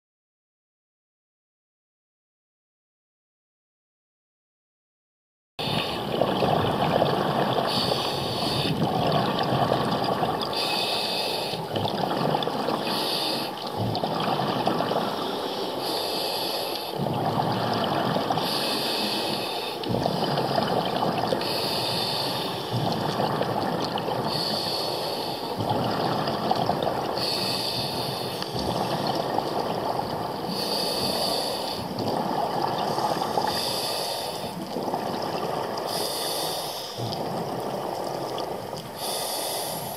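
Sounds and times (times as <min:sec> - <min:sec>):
exhaled bubbles underwater: 0:05.6 - 0:39.9
scuba regulator breathing hiss: 0:07.7 - 0:08.8, 0:10.5 - 0:11.7, 0:12.8 - 0:13.6, 0:15.0 - 0:17.0, 0:18.4 - 0:19.9, 0:21.4 - 0:22.8, 0:24.3 - 0:25.6, 0:27.2 - 0:29.0, 0:30.5 - 0:32.0, 0:32.9 - 0:34.6, 0:35.8 - 0:37.1, 0:39.0 - 0:39.9.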